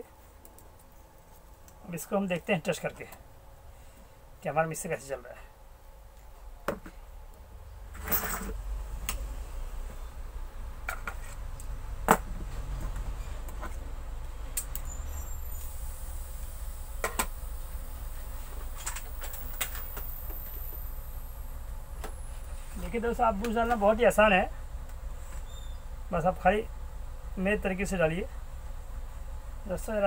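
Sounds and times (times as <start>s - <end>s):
low steady rumble: 0.2s - 30.0s
faint high whine: 12.6s - 30.0s.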